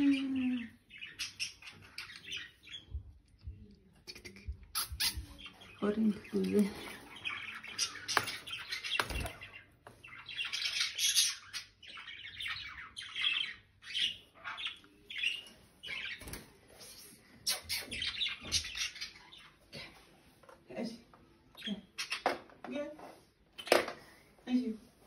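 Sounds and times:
budgerigars chirping: 0:00.5 - 0:03.1, 0:04.1 - 0:16.4, 0:17.4 - 0:19.6.

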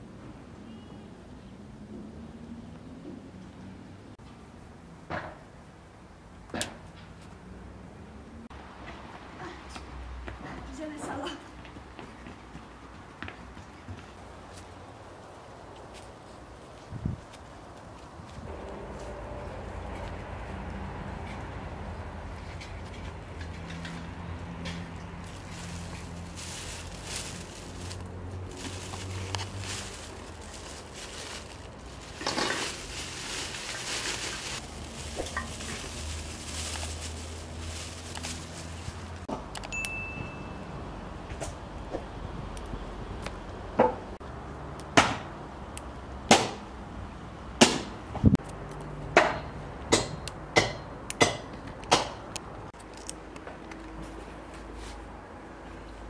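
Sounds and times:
beans rustling: 0:23.7 - 0:39.3.

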